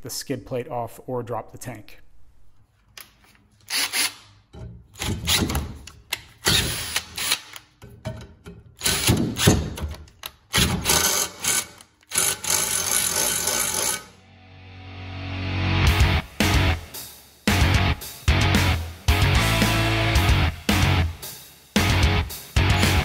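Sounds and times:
cordless drill boring through steel: 0:03.7 - 0:04.2, 0:10.6 - 0:14.2.

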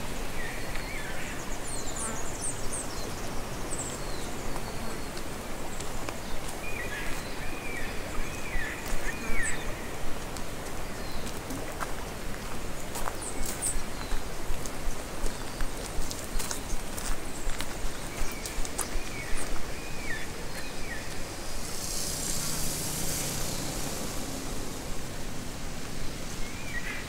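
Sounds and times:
forest birds calling: 0:00.0 - 0:27.0
footsteps crunching on gravel: 0:10.1 - 0:24.1.

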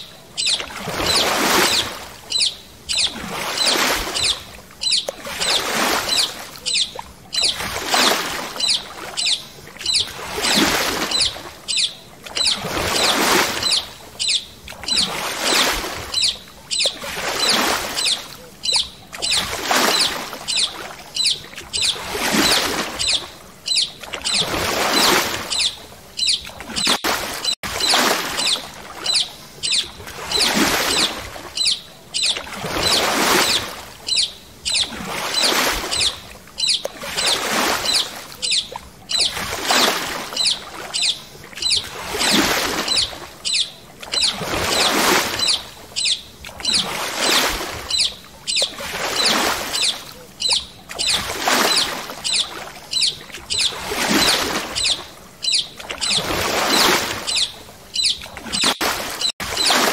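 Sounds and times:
paddle strokes splashing water: 0:00.0 - 0:59.9.

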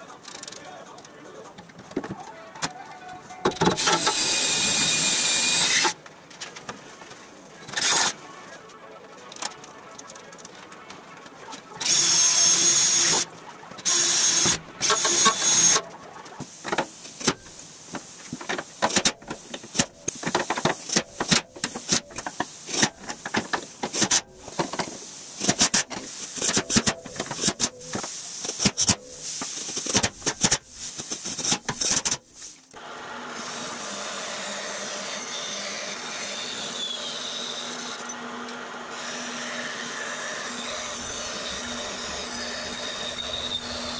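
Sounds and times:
cordless drill whining: 0:03.8 - 0:06.0, 0:13.9 - 0:15.8, 0:32.8 - 0:43.9
hand saw cutting metal tubing: 0:03.8 - 0:06.0, 0:13.9 - 0:15.8, 0:23.9 - 0:24.2
shop machine motor running: 0:32.8 - 0:43.9.

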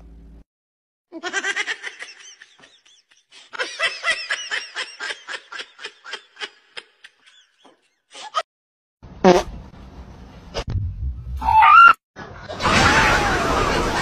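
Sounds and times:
person laughing: 0:01.2 - 0:08.4.

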